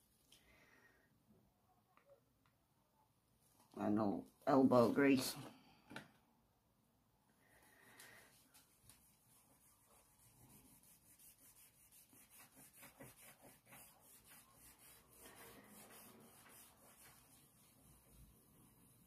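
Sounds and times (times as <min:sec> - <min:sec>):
cloth rubbing on resin: 0:08.3 - 0:19.0.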